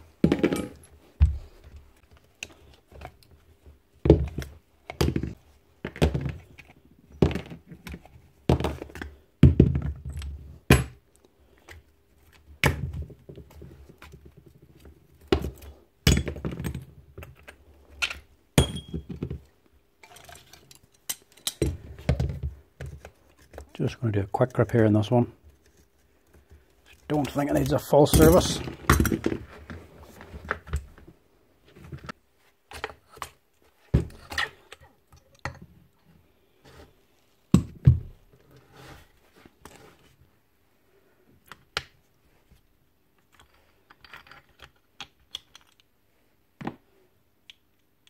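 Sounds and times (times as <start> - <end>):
metal parts knocking on workbench: 0.2 - 0.9.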